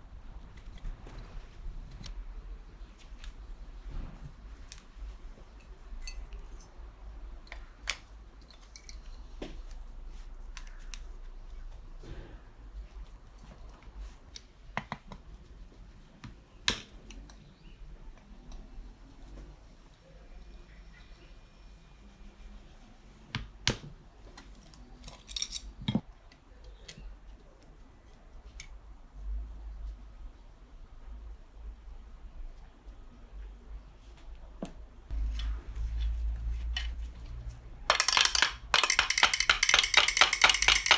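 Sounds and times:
metal parts and tools clinking: 0:05.6 - 0:06.8, 0:07.9 - 0:09.2, 0:24.6 - 0:26.0, 0:26.7 - 0:27.2, 0:37.9 - 0:40.9.

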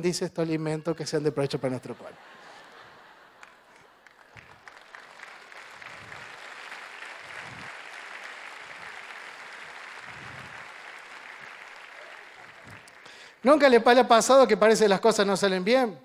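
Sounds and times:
audience applauding: 0:02.4 - 0:13.4.

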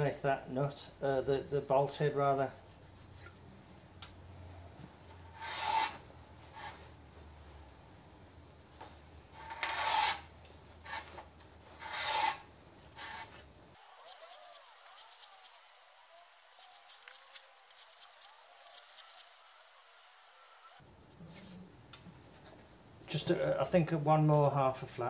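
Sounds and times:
cutter scraping cast iron: 0:13.0 - 0:20.8.

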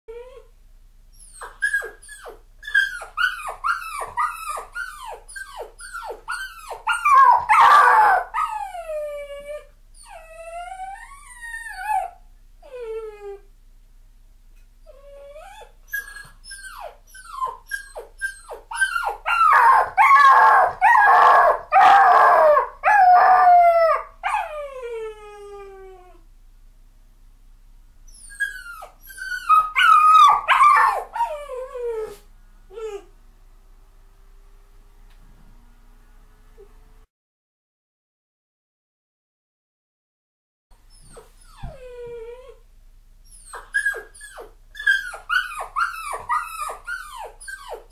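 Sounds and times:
puppy crying and whining: 0:00.1 - 0:00.5, 0:01.1 - 0:13.5, 0:14.8 - 0:26.2, 0:28.1 - 0:33.1, 0:40.8 - 0:42.6, 0:43.2 - 0:47.9.

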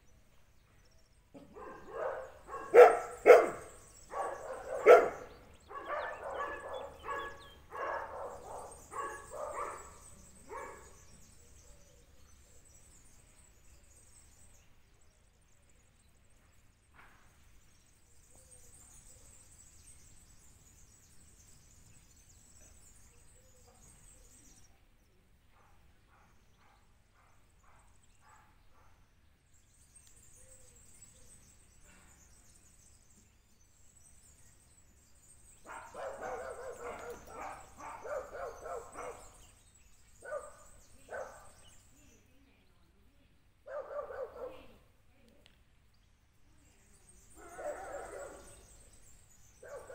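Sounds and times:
dog barking: 0:01.4 - 0:10.9, 0:25.6 - 0:29.0, 0:35.6 - 0:39.4, 0:40.2 - 0:41.6, 0:43.7 - 0:44.8, 0:47.4 - 0:48.6, 0:49.6 - 0:49.9.

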